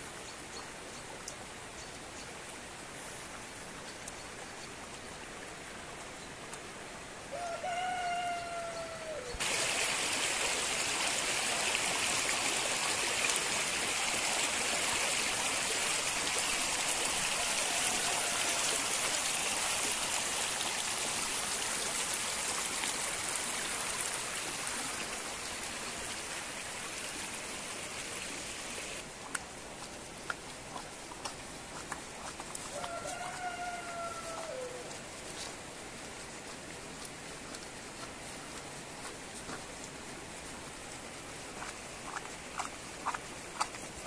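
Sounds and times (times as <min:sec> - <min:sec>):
water rushing over rocks: 0:09.4 - 0:44.0.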